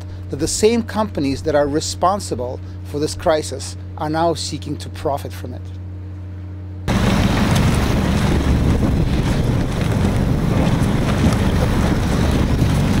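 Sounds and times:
speedboat running: 0.0 - 13.0
rushing water: 6.9 - 13.0
wind buffeting microphone: 6.9 - 13.0.

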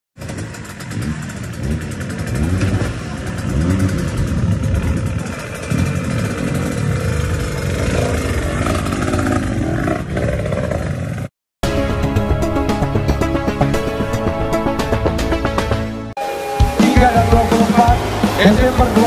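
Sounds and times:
dirt bike engine revving: 0.2 - 11.3, 16.2 - 19.0.

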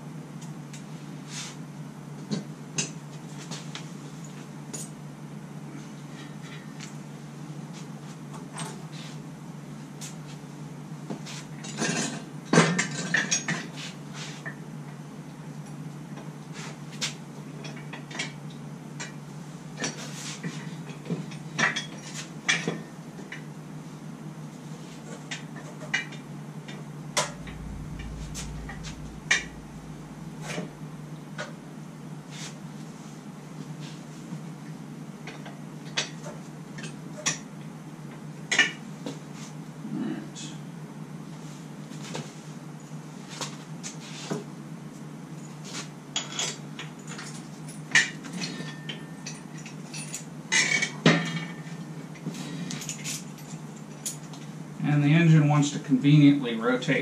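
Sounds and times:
steady low hum: 26.5 - 33.8.

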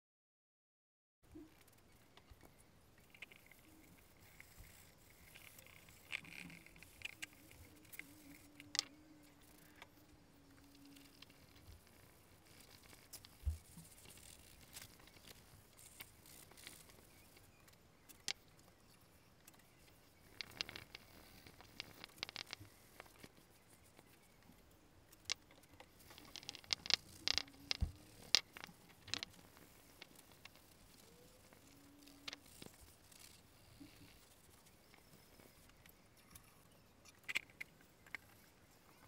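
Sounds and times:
faint low hum: 1.3 - 39.0
small clicks and taps: 1.6 - 11.9, 12.5 - 24.3, 25.1 - 34.0.

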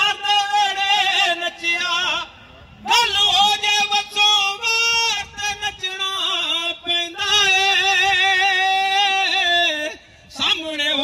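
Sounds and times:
man singing in a high voice: 0.0 - 11.0.

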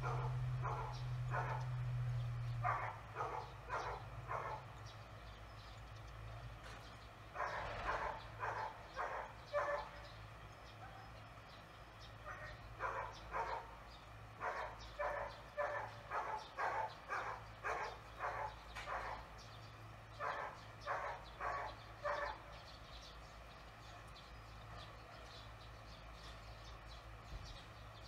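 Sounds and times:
dog barking: 0.0 - 1.8, 2.6 - 4.8, 7.3 - 10.2, 10.8 - 11.2, 12.2 - 19.4, 20.2 - 22.6, 24.7 - 25.4.

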